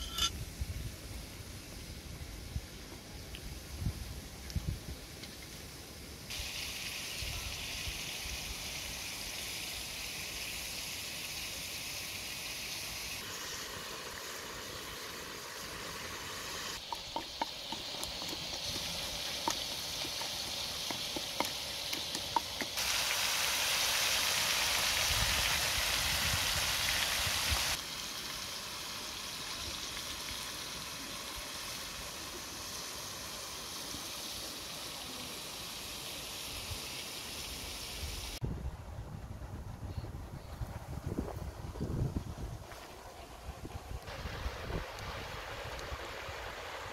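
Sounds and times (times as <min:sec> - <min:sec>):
rushing hiss: 0:06.3 - 0:38.4.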